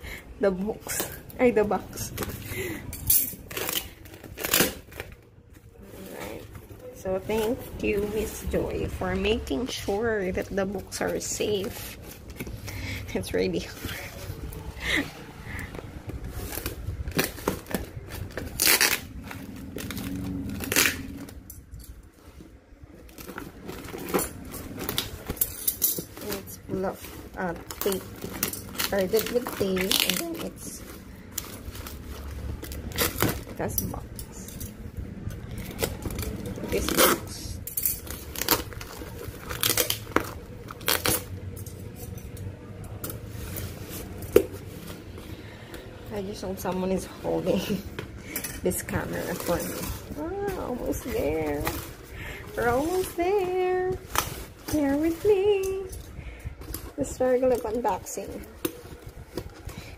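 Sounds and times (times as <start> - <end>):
packing tape ripping: 3.3 - 5.2, 16.2 - 21.6, 23.0 - 33.7, 35.5 - 41.6
cardboard crinkling and rustling: 15.4 - 34.0, 38.0 - 42.1, 42.7 - 59.9.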